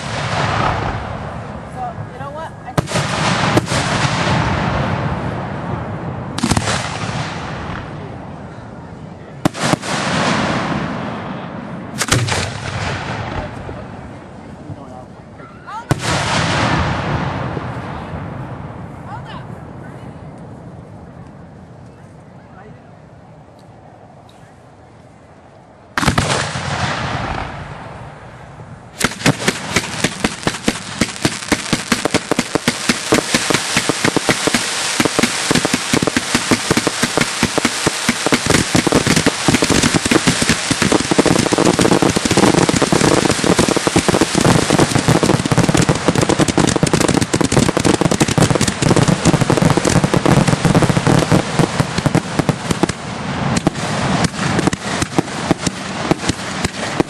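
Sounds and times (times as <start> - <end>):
firework bang with hiss: 0.0 - 1.4, 2.8 - 5.2, 6.4 - 7.9, 9.4 - 13.8, 15.9 - 18.3, 26.0 - 27.8, 29.0 - 57.0
fireworks crackling pops and bangs: 0.0 - 8.2, 9.4 - 14.5, 15.7 - 18.9, 26.0 - 57.0.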